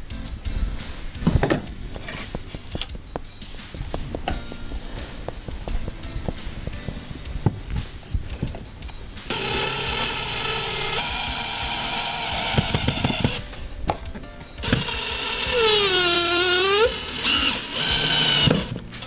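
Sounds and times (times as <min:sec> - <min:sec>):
cordless drill whirring: 0:09.3 - 0:13.5, 0:14.6 - 0:18.8.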